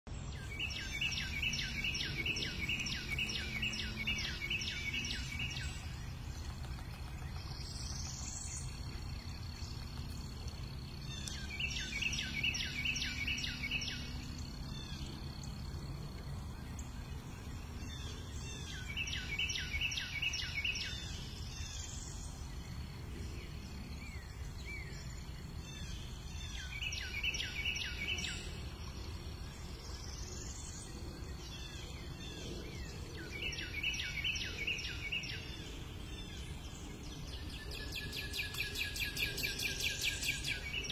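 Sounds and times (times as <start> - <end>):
songbird trilling: 0.4 - 6.3, 11.0 - 15.1, 17.8 - 22.1.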